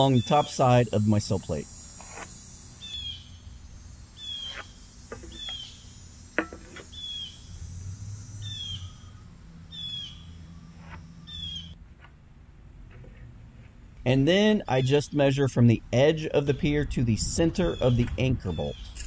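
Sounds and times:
bird chirping: 2.8 - 6.0, 6.8 - 11.8, 16.2 - 19.0.

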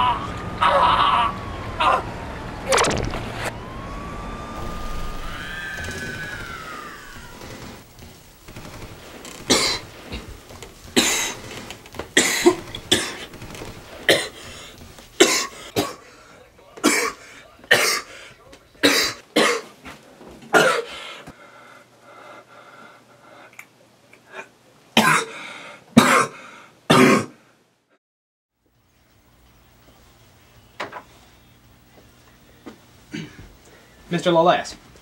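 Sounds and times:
man coughing: 9.5 - 10.3, 11.0 - 11.5, 12.2 - 13.3, 14.1 - 14.6, 15.2 - 16.2, 16.8 - 18.2, 18.8 - 19.7, 20.5 - 21.0, 25.0 - 25.4, 26.0 - 27.4, 33.1 - 33.5.

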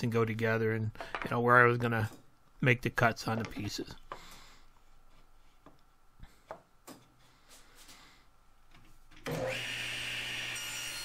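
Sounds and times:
power tool running: 9.2 - 11.0.

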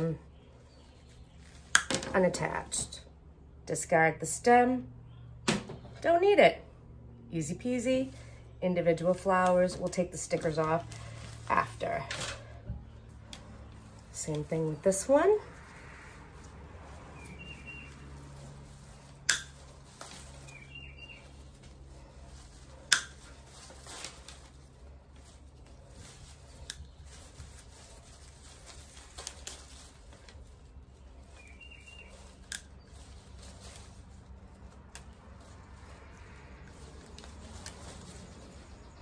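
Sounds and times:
wire snips cutting stems: 19.1 - 20.6, 22.8 - 23.4, 32.1 - 35.9, 36.6 - 38.4.

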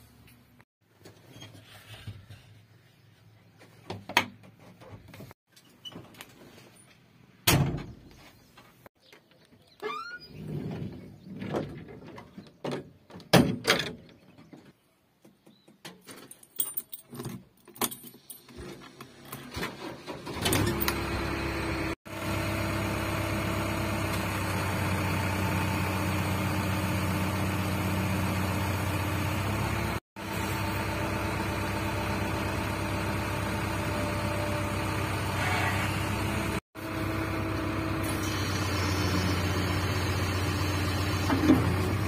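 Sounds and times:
keys jangling: 16.1 - 18.6
diesel engine idling: 21.0 - 42.0.

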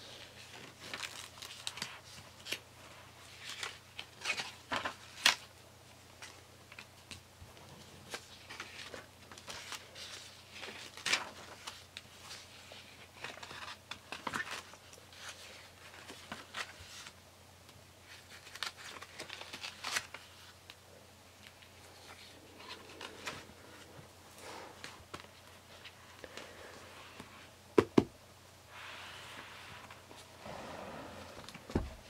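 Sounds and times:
paper pages turning: 0.4 - 5.5, 7.8 - 17.2, 18.0 - 20.8, 21.4 - 24.0.

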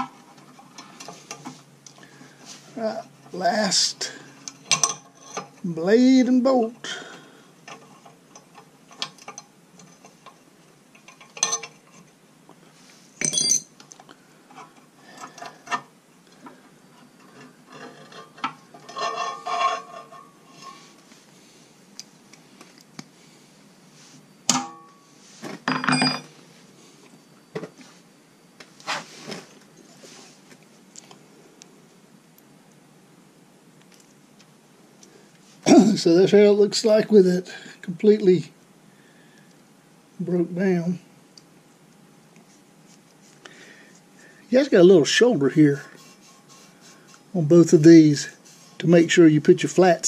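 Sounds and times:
metal wrench clinking on steel: 13.2 - 13.7.

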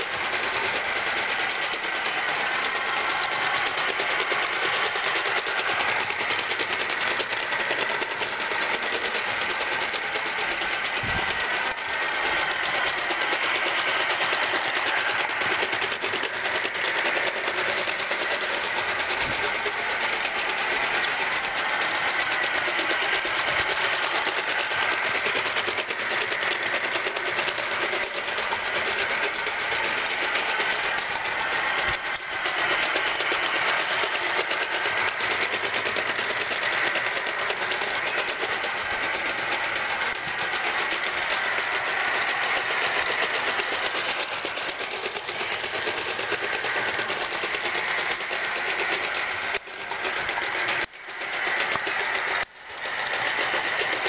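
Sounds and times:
mechanical clatter: 0.0 - 54.0
steam locomotive chuffing: 0.0 - 54.0.

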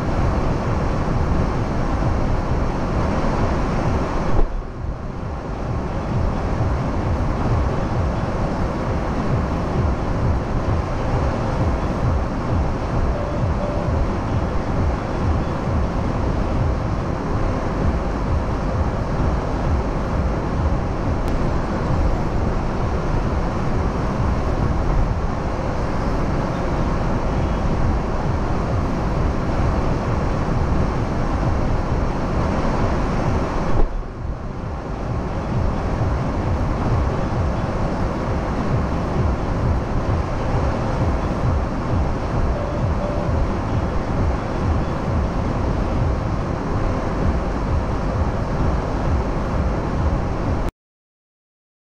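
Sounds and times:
faint steady hum: 0.0 - 50.7
street traffic rumble: 0.0 - 50.7.

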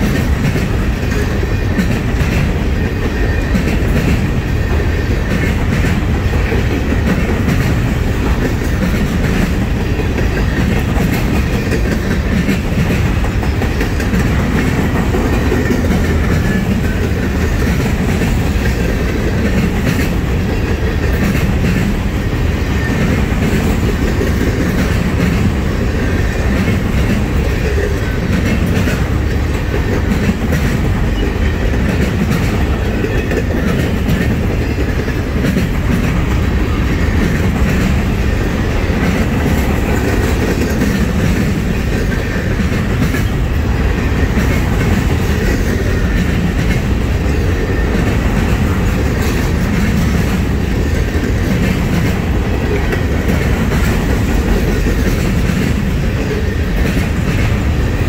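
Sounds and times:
freight train rumbling past: 0.0 - 58.0
wheels clicking over rail joints: 0.0 - 58.0.

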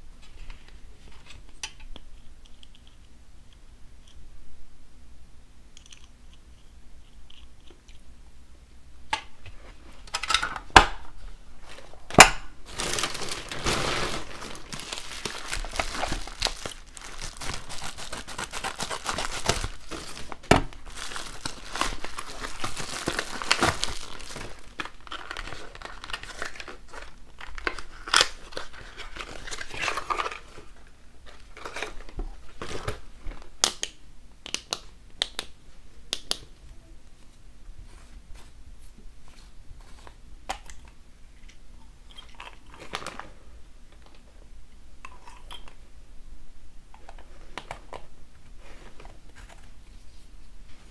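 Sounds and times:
plastic mailer bag crinkling: 12.6 - 30.7.

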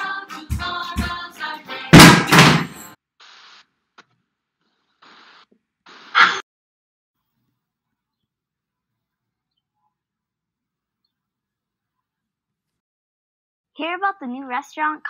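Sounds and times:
song with a beat: 0.0 - 2.8
loud double knock: 2.0 - 2.7.

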